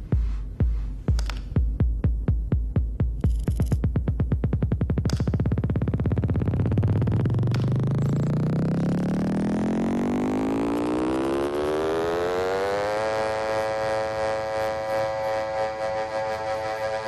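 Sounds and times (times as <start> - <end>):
synthesizer tone rising in pitch: 4.5 - 17.0.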